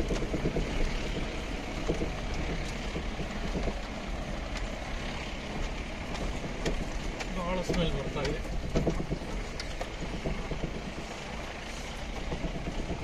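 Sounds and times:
vehicle engine and road noise: 0.0s - 13.0s
short knocks: 5.5s - 13.0s.

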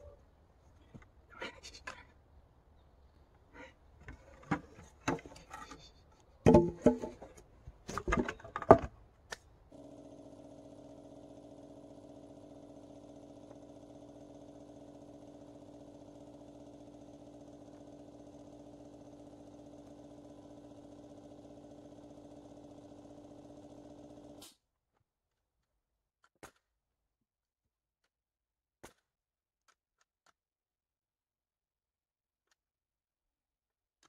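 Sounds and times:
wooden planks knocking together: 4.0s - 5.8s, 6.4s - 9.0s.

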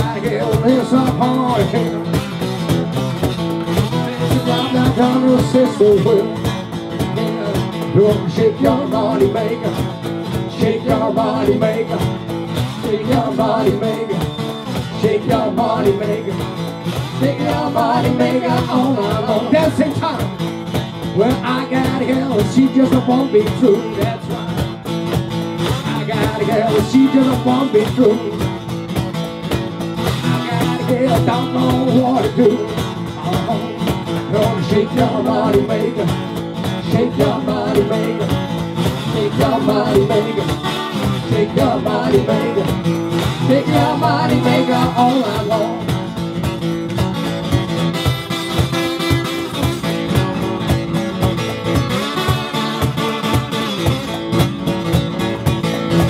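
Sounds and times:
man and woman singing: 0.0s - 2.0s, 3.9s - 6.5s, 7.2s - 20.2s, 21.2s - 24.5s, 25.8s - 28.4s, 30.2s - 46.0s
acoustic guitar strummed: 0.0s - 56.0s.

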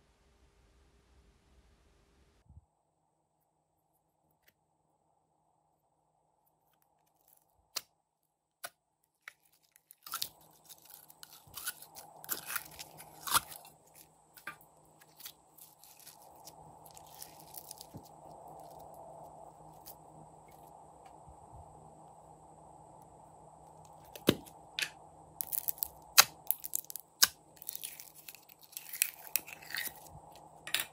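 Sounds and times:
slime crackling: 9.2s - 19.0s, 25.4s - 30.1s.

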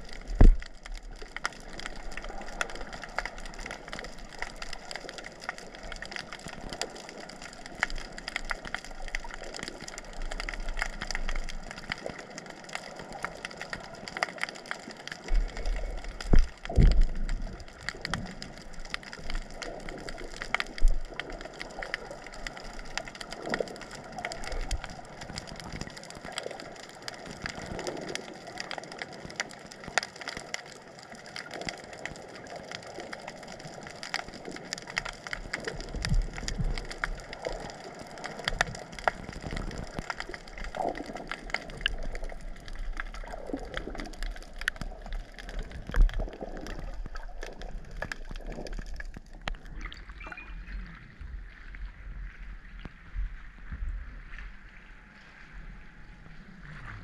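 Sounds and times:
underwater crackle of tiny clicks: 0.0s - 57.0s.

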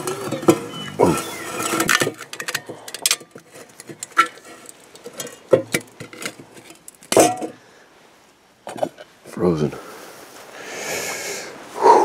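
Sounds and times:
ice sheets cracking and clinking: 0.0s - 7.5s.

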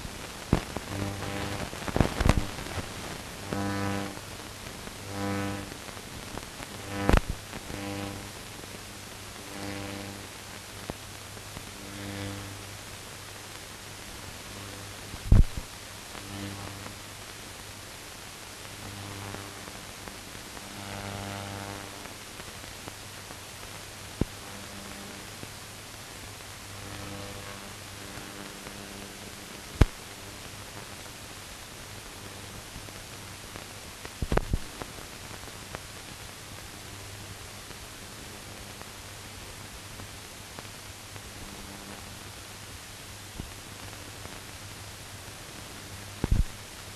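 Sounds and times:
low mains hum: 0.0s - 46.9s
steady hiss: 0.0s - 46.9s
sharp clicks and pops: 0.4s - 3.8s, 6.7s - 7.8s, 15.1s - 15.7s, 29.7s - 30.0s, 34.1s - 34.9s, 46.2s - 46.6s.

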